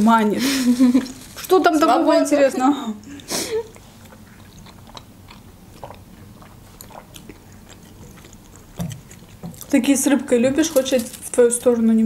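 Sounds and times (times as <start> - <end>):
quiet chewing: 3.0 - 12.0.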